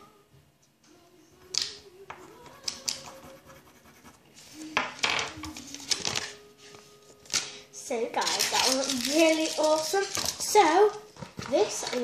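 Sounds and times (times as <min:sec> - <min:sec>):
toy pen scratching on paper: 0:02.7 - 0:04.2.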